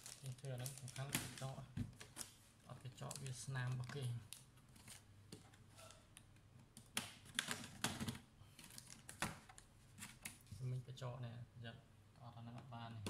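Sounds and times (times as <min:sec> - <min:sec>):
fingers clicking on plastic cover: 0:06.7 - 0:09.6.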